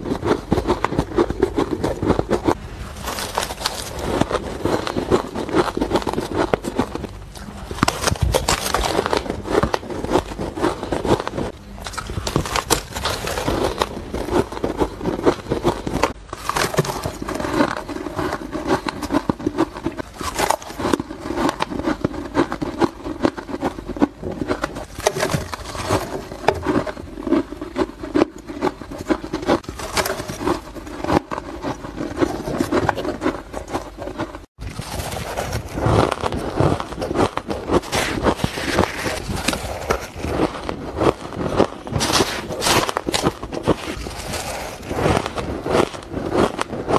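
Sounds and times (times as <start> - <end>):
faint steady hum: 0.0 - 46.9
ice being chewed: 0.0 - 46.9.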